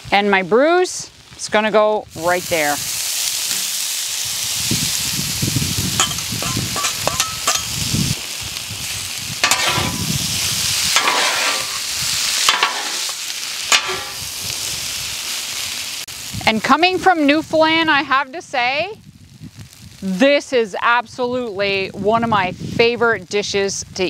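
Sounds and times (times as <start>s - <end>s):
bread sizzling on griddle: 0.0s - 21.8s
metal scraper scraping griddle: 9.4s - 10.1s, 11.0s - 11.8s, 12.5s - 13.1s, 13.7s - 14.2s.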